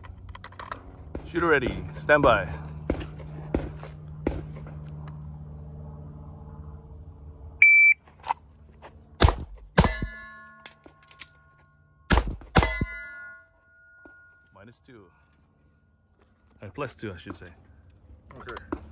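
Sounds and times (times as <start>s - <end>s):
shot timer beep: 7.6s - 8.0s
metallic ringing of steel targets: 9.7s - 14.8s
handgun shots: 12.1s - 13.0s.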